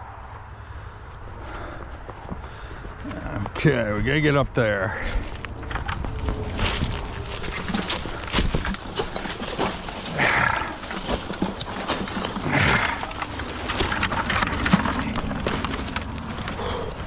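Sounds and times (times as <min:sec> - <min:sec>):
heavy breathy exhalations: 0:00.5 - 0:03.0, 0:12.4 - 0:13.2, 0:16.4 - 0:17.0
twigs crackling and snapping: 0:05.1 - 0:17.0.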